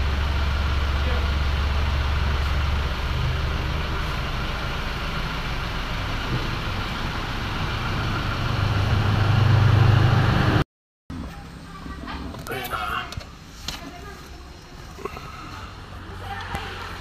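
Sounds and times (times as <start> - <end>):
car engine idling: 0.0 - 10.6.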